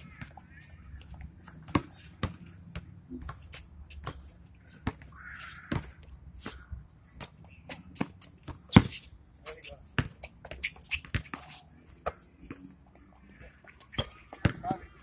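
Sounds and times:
basketball bouncing on court: 1.6s - 3.4s.

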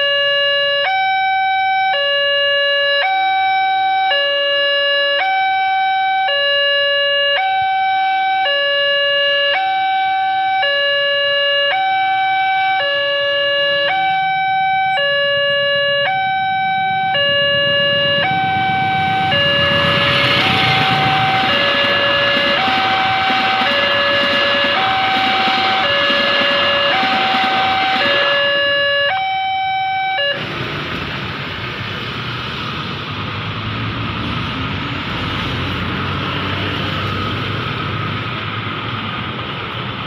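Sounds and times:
level crossing two-tone alarm: 0.0s - 30.4s
passenger train running past: 13.8s - 40.0s.

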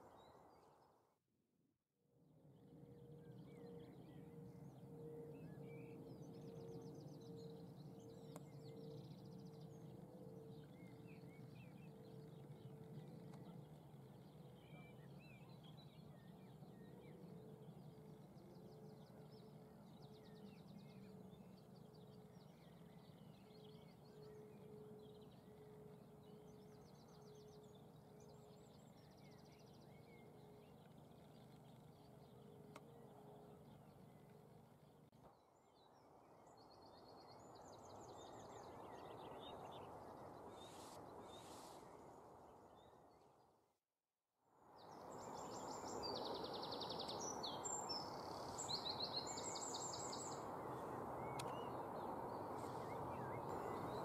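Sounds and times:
faint pulsing hum: 2.5s - 35.1s, 45.1s - 54.0s
small birds singing: 3.2s - 35.1s, 44.8s - 54.0s.

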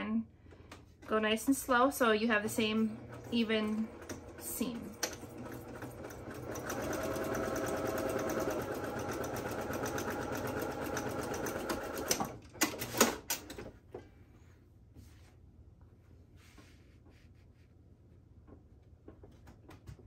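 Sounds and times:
electric sewing machine stitching: 2.4s - 13.3s
sharp clicks and knocks: 18.4s - 20.0s.

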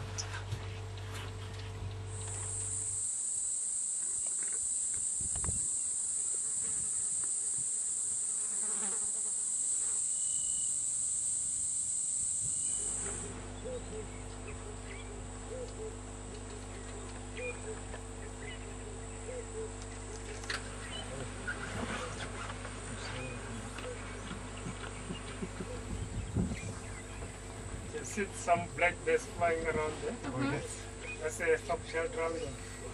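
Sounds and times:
high-pitched insect drone: 2.2s - 13.8s.

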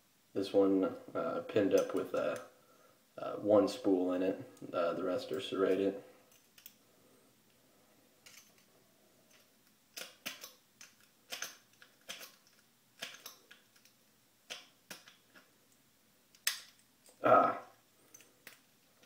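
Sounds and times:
lock pick clicking: 9.3s - 15.5s.

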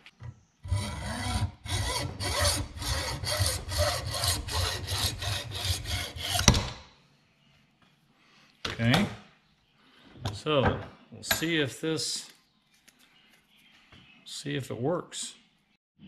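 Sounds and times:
hacksaw cutting plastic: 0.1s - 6.8s.

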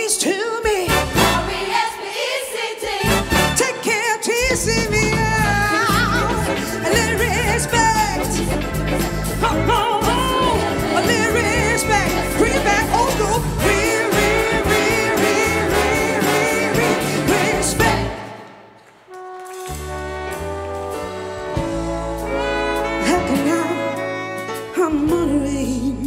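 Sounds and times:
brass-heavy soul band: 0.7s - 2.0s, 2.8s - 26.0s
gospel choir singing: 0.8s - 4.4s, 5.9s - 18.7s
woman singing with vibrato: 3.6s - 8.4s, 9.4s - 18.3s, 24.8s - 26.0s.

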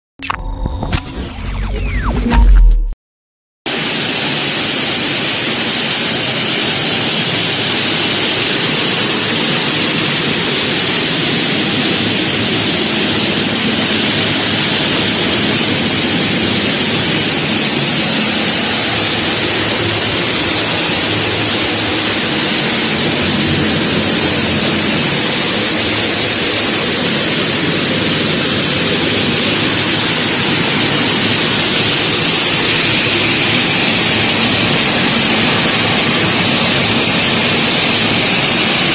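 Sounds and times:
machine rushing noise: 0.2s - 3.0s, 3.7s - 38.9s.

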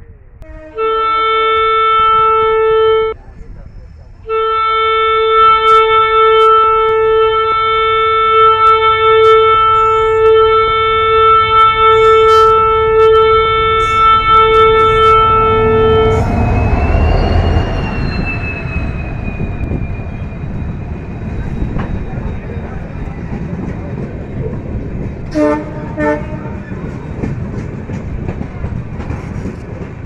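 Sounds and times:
train air horn blast: 0.4s - 3.2s, 4.2s - 17.9s, 25.3s - 26.6s
train wheels rumbling: 5.8s - 30.0s
wavering high whine: 11.7s - 23.4s.

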